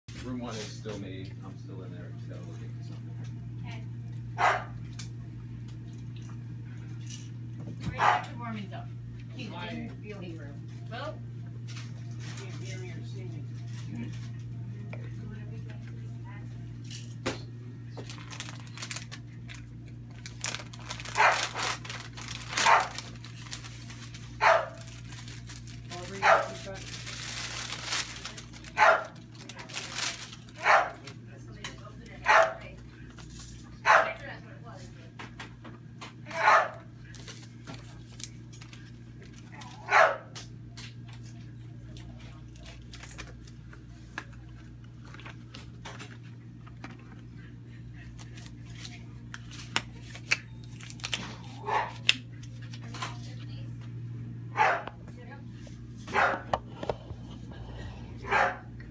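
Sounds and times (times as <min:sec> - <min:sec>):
steady low hum: 0:00.1 - 0:58.9
dog barking: 0:04.4 - 0:04.8, 0:08.0 - 0:08.4, 0:21.2 - 0:21.6, 0:22.6 - 0:23.0, 0:24.4 - 0:24.8, 0:26.2 - 0:26.6, 0:28.8 - 0:29.2, 0:30.6 - 0:31.0, 0:32.2 - 0:32.6, 0:33.8 - 0:34.2, 0:36.3 - 0:36.9, 0:39.8 - 0:40.3, 0:51.6 - 0:52.1, 0:54.5 - 0:55.0, 0:56.1 - 0:56.5, 0:58.2 - 0:58.7
sterile pack rustling: 0:18.0 - 0:31.1.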